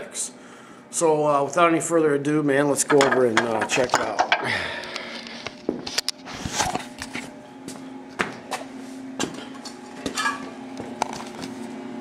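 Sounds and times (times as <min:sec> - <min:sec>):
faint steady hum: 0:00.0 - 0:11.3
footsteps on concrete: 0:06.8 - 0:10.2.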